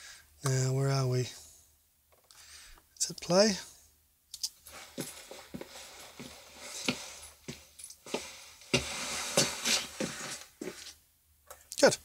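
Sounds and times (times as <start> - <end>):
background hiss: 0.0 - 12.0
footsteps walking: 4.4 - 11.0.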